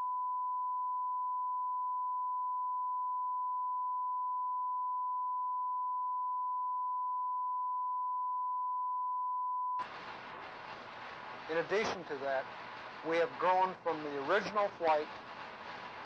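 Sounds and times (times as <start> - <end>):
steady sine tone: 0.0 - 9.8.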